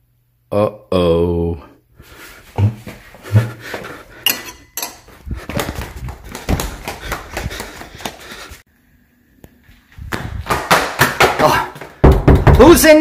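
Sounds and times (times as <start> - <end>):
footsteps on tiled floor: 2.1 - 8.6.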